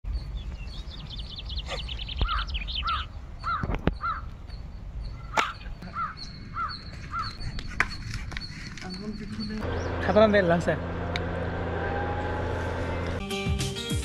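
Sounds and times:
small bird twittering: 0.2 - 10.2
crow cawing: 2.2 - 4.3, 5.8 - 7.4.

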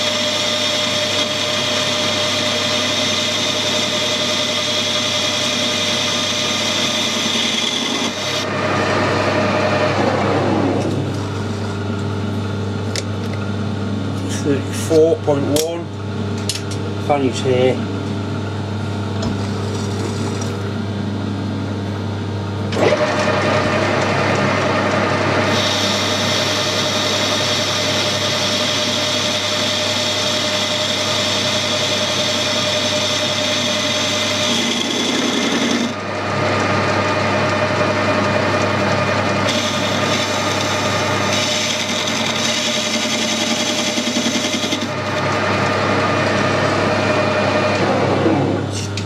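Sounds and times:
lathe spindle humming: 0.0 - 11.9, 22.8 - 48.7.

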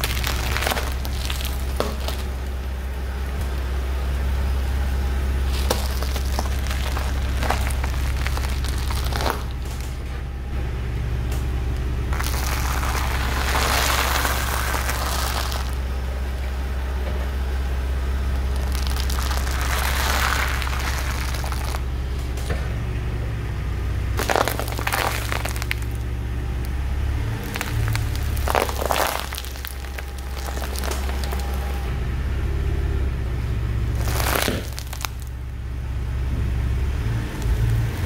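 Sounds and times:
tyre crushing brittle objects: 0.0 - 2.7, 5.4 - 10.2, 12.1 - 15.8, 18.4 - 21.9, 24.2 - 26.0, 27.3 - 31.8, 33.9 - 35.4
car engine idling: 0.0 - 38.0.

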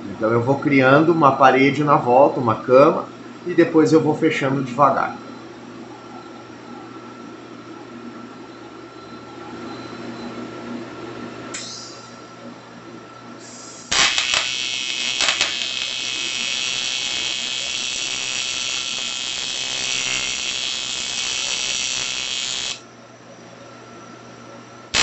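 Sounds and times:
welding arc buzzing: 13.5 - 22.8
welding arc crackle: 13.7 - 22.8.

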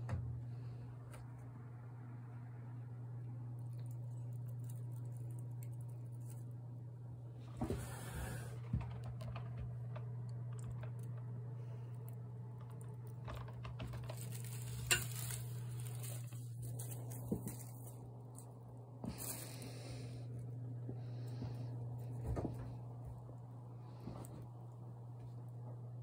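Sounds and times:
steady low hum: 0.0 - 26.0
cat rustling packing paper: 12.7 - 19.8.

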